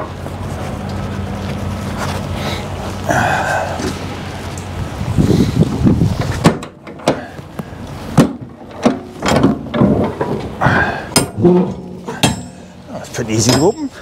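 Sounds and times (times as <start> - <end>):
trailer doors rattling scrape: 3.8 - 14.0
sharp metal clunks: 8.2 - 10.5, 11.1 - 14.0.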